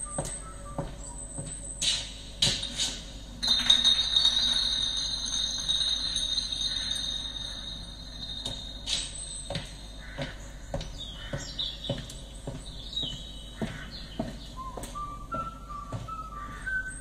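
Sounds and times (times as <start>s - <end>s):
birds chirping: 4.4s - 17.0s
footsteps walking: 5.5s - 16.2s.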